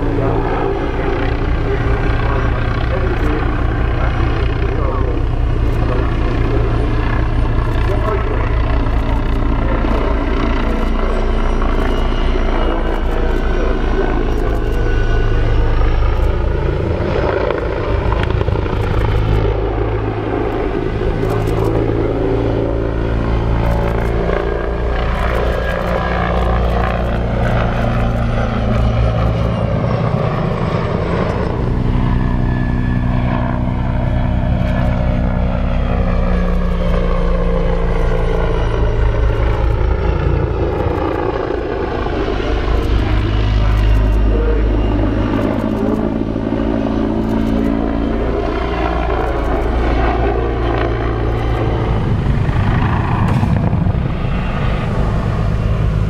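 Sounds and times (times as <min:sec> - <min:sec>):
helicopter rotors and turbines: 0:00.0 - 0:56.0.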